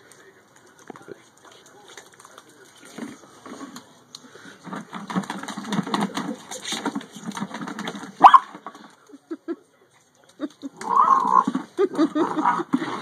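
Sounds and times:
puppy yip: 8.2 - 8.5.

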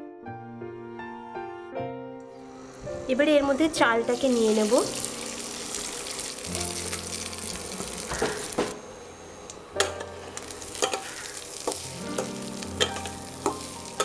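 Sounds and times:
rice sizzling in hot oil: 4.0 - 14.0.

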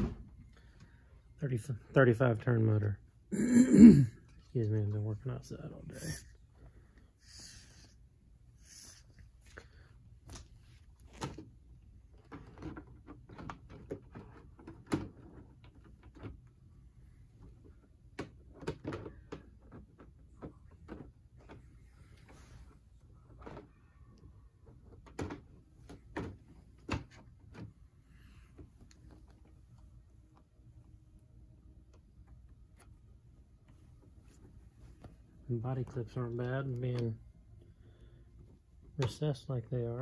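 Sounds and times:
soft rustling: 32.2 - 36.1.

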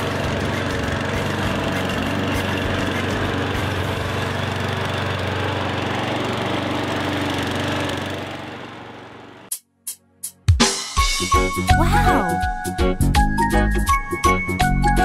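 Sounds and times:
riding lawn mower engine running: 0.0 - 9.5.

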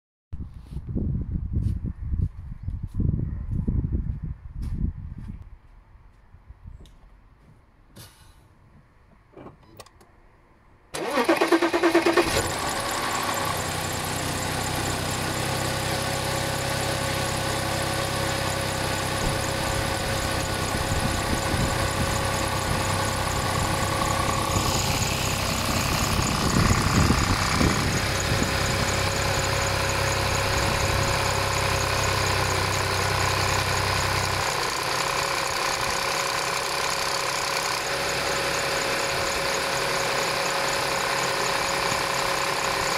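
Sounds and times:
car engine starting and idling: 10.8 - 42.9.

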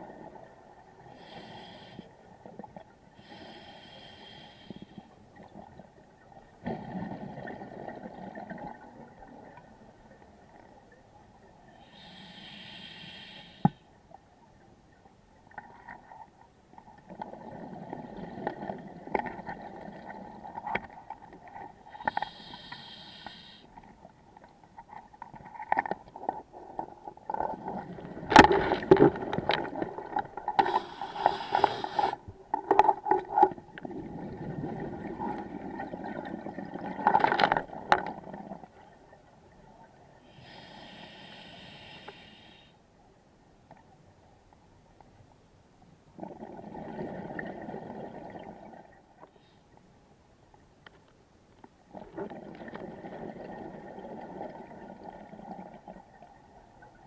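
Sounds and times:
hissing regulator inhales: 3.2 - 5.0, 11.8 - 13.8, 22.0 - 23.7, 30.6 - 32.2, 40.3 - 42.8
gurgle of exhaled bubbles: 6.6 - 9.6, 32.9 - 38.7, 46.2 - 49.0, 51.9 - 56.3.

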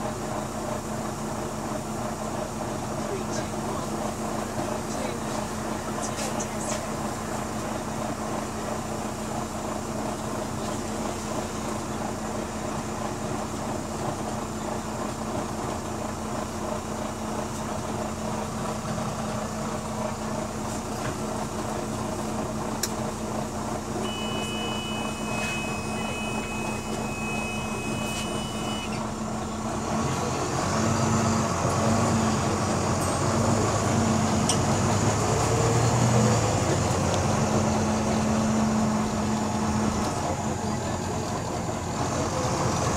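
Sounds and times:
bus diesel engine: 0.0 - 42.9
two-note beep: 24.0 - 29.0.

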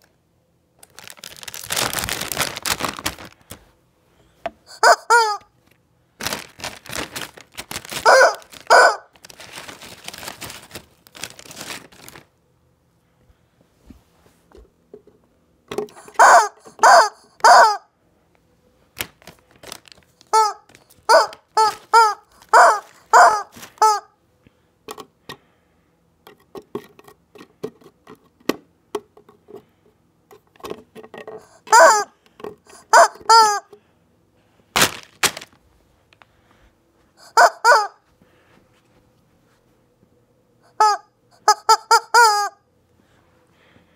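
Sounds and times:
plastic chip bag crinkling: 0.8 - 3.7, 4.8 - 12.4, 19.0 - 24.0, 34.7 - 35.6
rubber chicken toy squawks: 4.7 - 5.5, 7.8 - 9.2, 15.9 - 17.9, 20.2 - 24.2, 31.4 - 33.7, 37.2 - 38.0, 40.7 - 42.7.

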